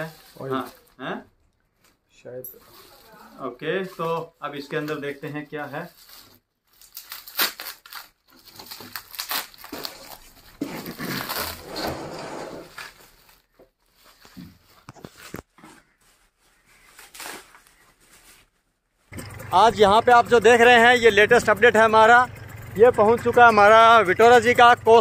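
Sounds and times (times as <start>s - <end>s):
bubble wrap crinkling: 0.0s - 1.0s, 2.6s - 11.7s, 12.7s - 19.1s.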